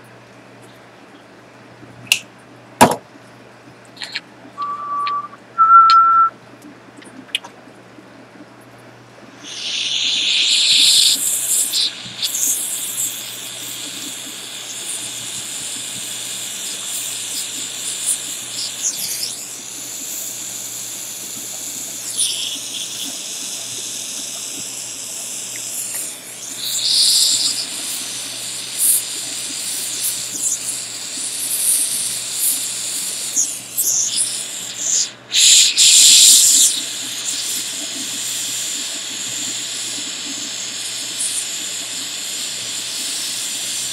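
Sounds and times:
soldering torch hissing: 0:09.4 - 0:43.9.

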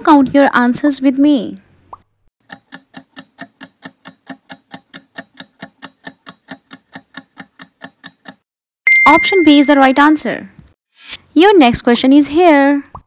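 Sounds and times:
clock ticking: 0:02.4 - 0:08.5.

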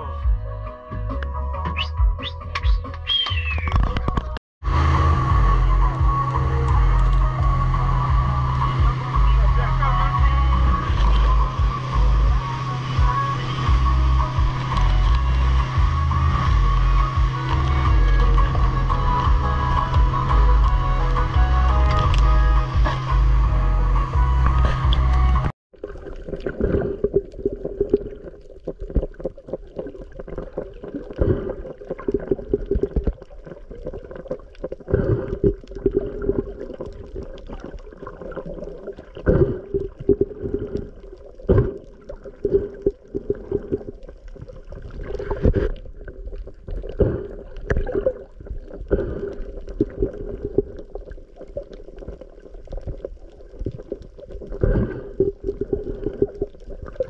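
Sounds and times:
underwater sloshing and gurgling: 0:03.6 - 0:57.0
steady low hum: 0:04.6 - 0:25.5.

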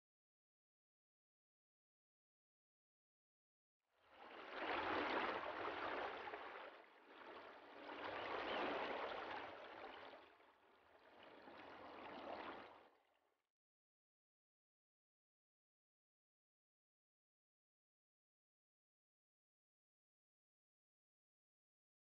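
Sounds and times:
rushing water: 0:04.2 - 0:10.2, 0:10.8 - 0:12.8.

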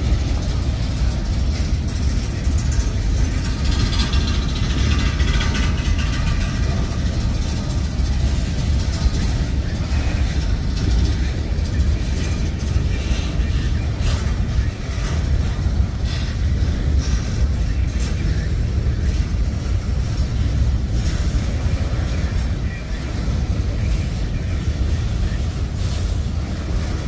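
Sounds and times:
train cars clattering: 0:00.0 - 0:27.0
train wheels rumbling on rail: 0:00.0 - 0:27.0.

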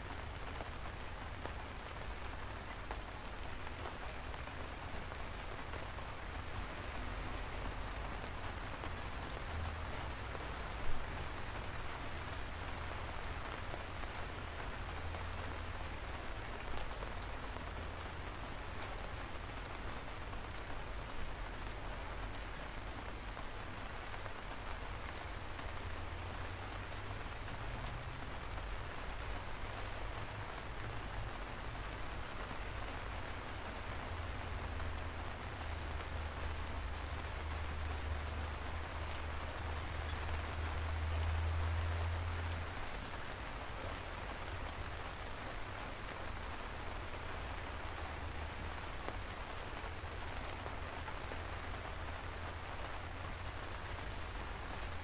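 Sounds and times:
steady rain hiss: 0:00.0 - 0:55.0
single raindrops ticking: 0:08.8 - 0:22.6, 0:26.9 - 0:31.4, 0:34.0 - 0:43.2.

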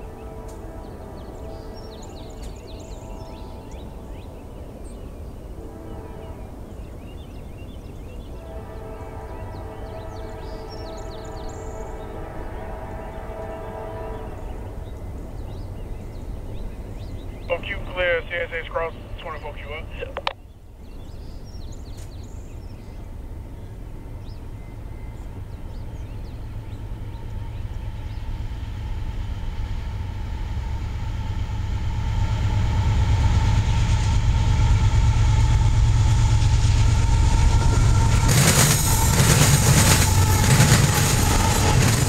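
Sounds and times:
locomotive engines rumbling: 0:00.0 - 0:21.1, 0:21.8 - 0:42.0
train wheels rushing over rails: 0:21.1 - 0:42.0.

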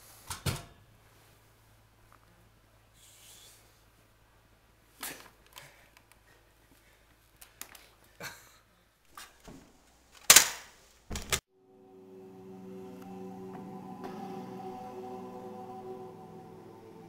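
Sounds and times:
sharp cracks and knocks: 0:09.4 - 0:11.4.

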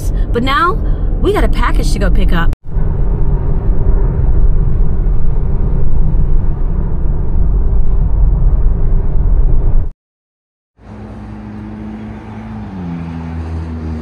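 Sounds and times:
car interior road and engine rumble: 0:00.0 - 0:09.9.

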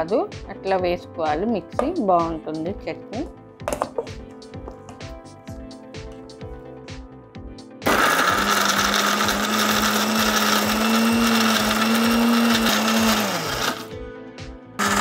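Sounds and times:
mixer grinder motor whirring: 0:07.8 - 0:13.9, 0:14.8 - 0:15.0.

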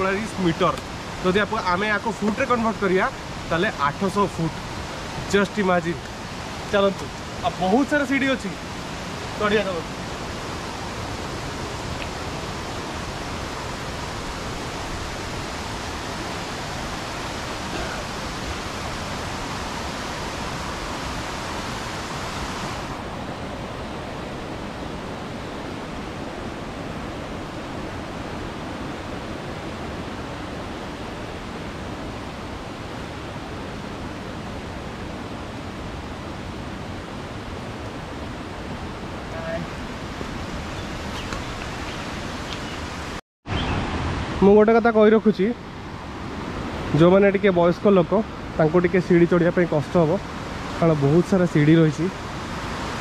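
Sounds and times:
waterfall roaring: 0:00.0 - 0:53.0.

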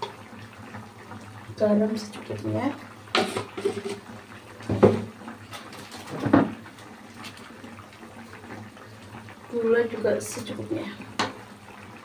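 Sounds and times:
sauce bubbling in a wok: 0:00.0 - 0:12.0.

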